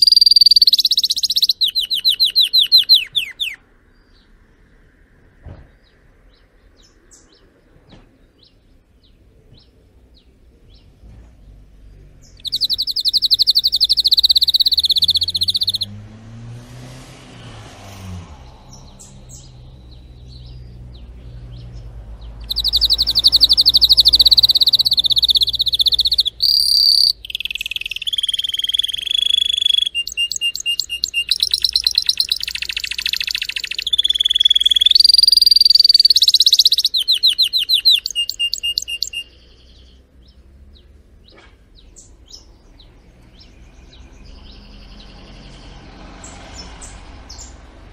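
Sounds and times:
canary singing rapid trills: 0.0 - 3.6, 12.2 - 15.9, 18.8 - 45.5
faint chirps: 0.0 - 3.6, 11.9 - 15.9, 22.4 - 40.4.

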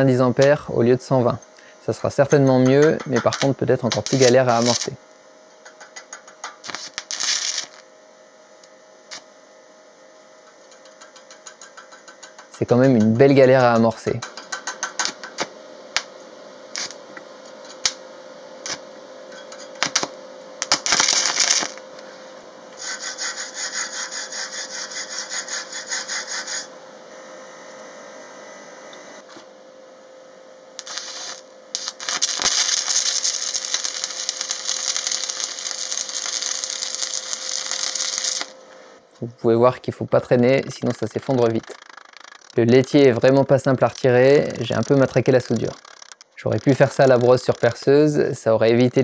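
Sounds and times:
welding rod scratching and sputtering: 2.3 - 5.0, 5.8 - 7.9, 16.7 - 17.0, 18.6 - 18.8, 19.4 - 21.8, 22.8 - 26.7, 30.8 - 38.6, 40.3 - 48.2
welding arc crackling: 2.6 - 7.9, 8.6 - 9.3, 16.7 - 17.0, 17.6 - 18.0, 18.6 - 18.8, 19.6 - 21.9, 30.8 - 38.8, 40.3 - 49.0.

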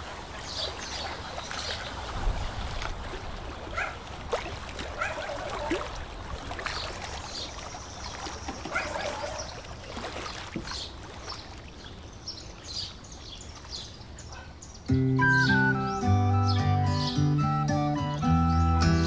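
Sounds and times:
water splashing off a paddle: 0.0 - 11.9.

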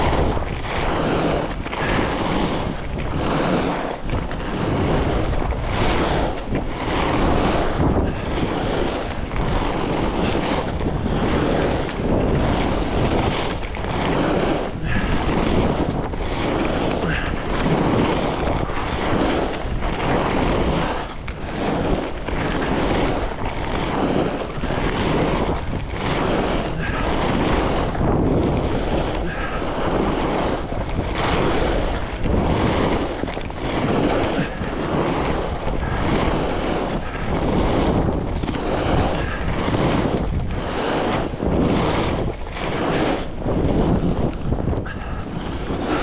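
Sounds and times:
skis carving on snow: 0.0 - 46.0
wind rushing over microphone: 0.0 - 46.0.

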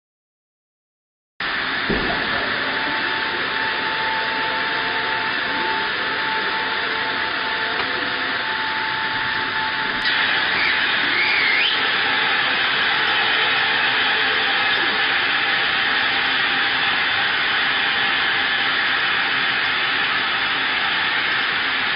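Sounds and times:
hydraulic hiss: 1.4 - 21.9
hydraulic whine: 1.4 - 21.9
brief wavering squeal: 8.4 - 12.1.

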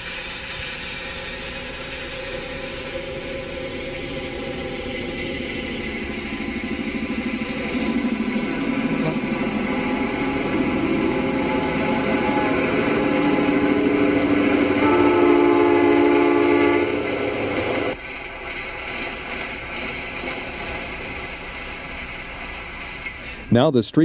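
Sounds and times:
diesel train rumbling past: 0.0 - 24.0
freight train rumbling past: 0.0 - 24.0
train air horn: 9.8 - 17.4.

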